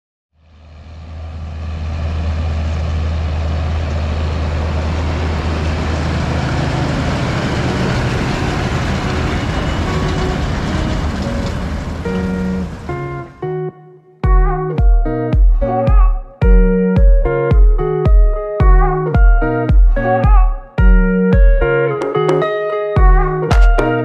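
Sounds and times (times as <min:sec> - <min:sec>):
tractor engine drone: 0:00.4 - 0:13.6.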